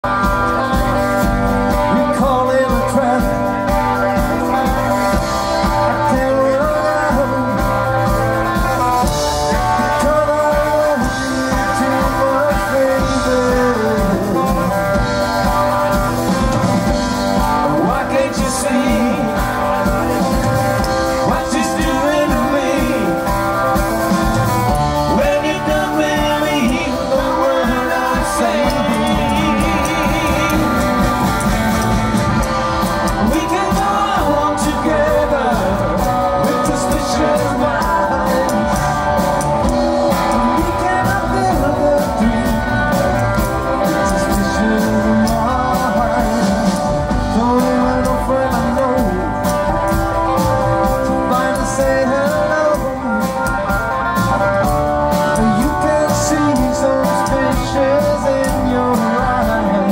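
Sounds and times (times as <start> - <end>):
drums: 0.0 - 59.9
electric guitar: 0.0 - 59.9
keyboard: 0.0 - 59.9
man singing lead: 0.0 - 59.9
upright bass: 0.0 - 59.9.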